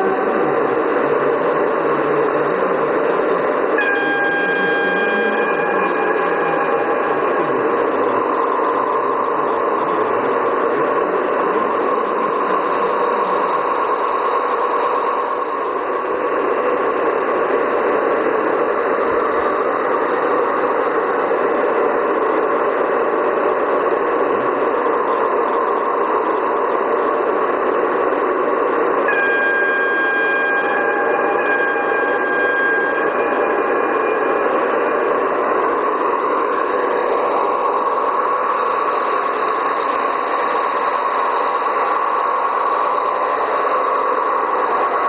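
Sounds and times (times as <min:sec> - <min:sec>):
diesel engine sound from small speaker: 0:00.0 - 0:45.0
steady high tone: 0:00.0 - 0:45.0.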